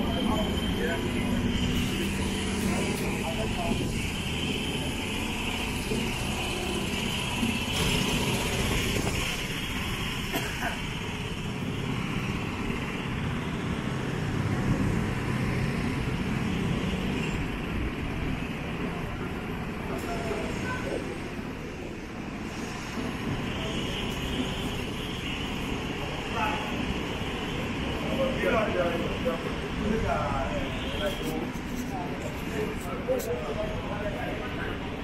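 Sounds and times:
road traffic noise: 0.0 - 35.0.

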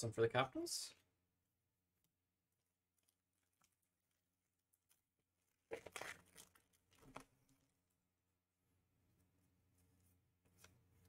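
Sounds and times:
card pack crinkling: 5.6 - 7.3.

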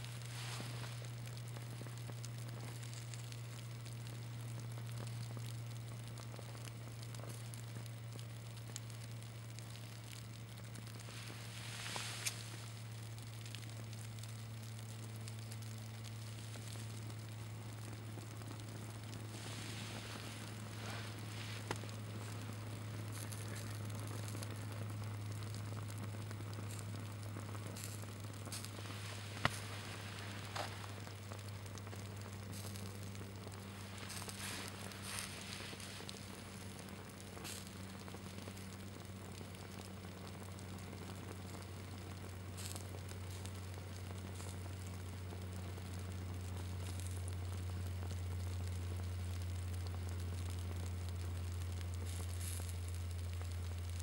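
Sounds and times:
fabric burning and crackling: 0.0 - 54.0
steady low hum: 0.0 - 54.0.

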